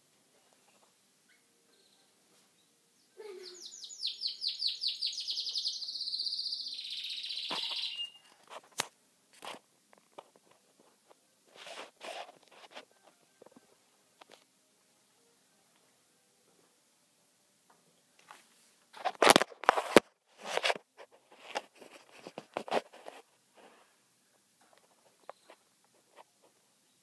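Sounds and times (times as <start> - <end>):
canary singing: 0.6 - 8.4
short bird calls: 3.1 - 8.3.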